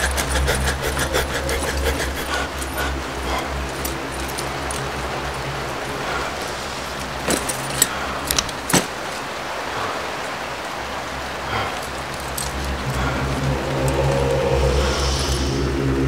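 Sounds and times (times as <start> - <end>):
rain hissing: 0.0 - 16.0.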